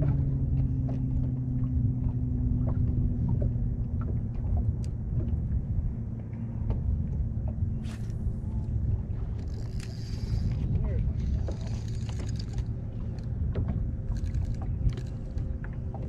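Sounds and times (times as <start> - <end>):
wind and waves rumble: 0.0 - 16.0
electric trolling motor humming: 7.8 - 16.0
small ticks: 14.1 - 15.7.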